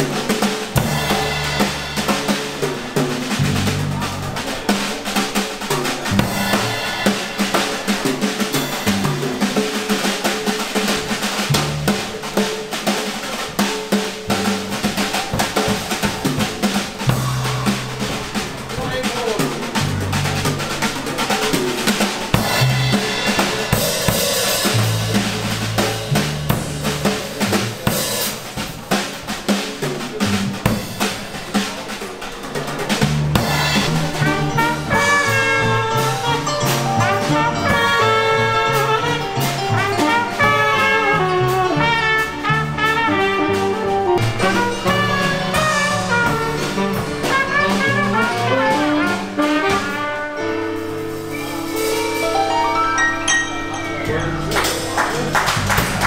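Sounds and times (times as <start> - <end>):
bass line: 0.0 - 4.9, 6.0 - 7.9, 11.3 - 12.5, 14.2 - 28.1, 32.9 - 52.8, 53.4 - 56.0
drum kit: 0.0 - 56.0
trumpet playing melody: 33.9 - 51.1
keyboard: 50.4 - 56.0.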